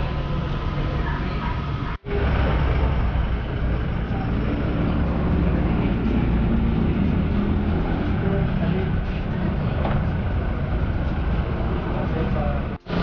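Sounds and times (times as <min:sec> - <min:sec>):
pickup engine running: 0:00.0 - 0:13.0.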